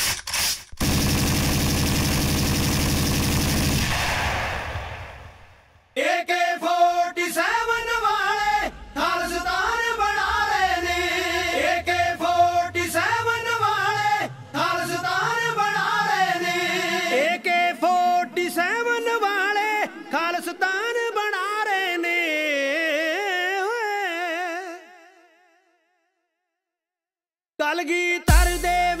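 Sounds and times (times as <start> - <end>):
group singing devotional song: 6.0 - 20.0.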